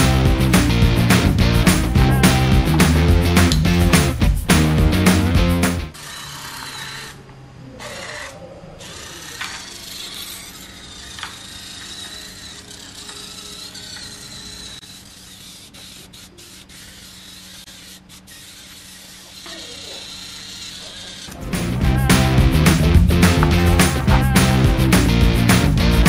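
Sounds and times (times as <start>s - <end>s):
thin high servo whine: 5.9s - 21.4s
servo robot whirring: 5.9s - 22.1s.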